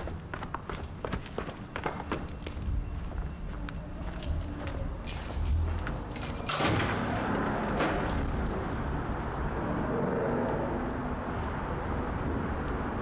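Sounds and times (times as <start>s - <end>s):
distant road traffic: 0.0s - 13.0s.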